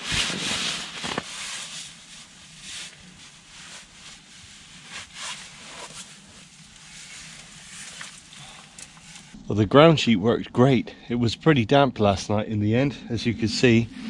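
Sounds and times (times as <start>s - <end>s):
rustling and scuffing of gear: 0.0s - 9.4s.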